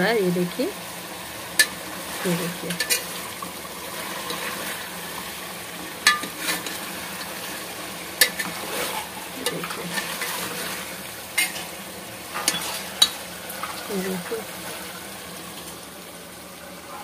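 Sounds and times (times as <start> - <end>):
chicken sizzling in oil: 0.0 - 17.0
spoon stirring in metal pot: 2.5 - 3.2, 6.0 - 7.6, 8.2 - 11.8, 12.4 - 13.8.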